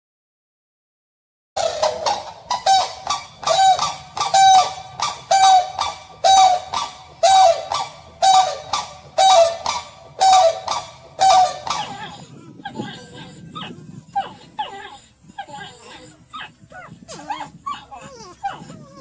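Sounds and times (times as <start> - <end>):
crane honking calls: 1.6 - 12.2.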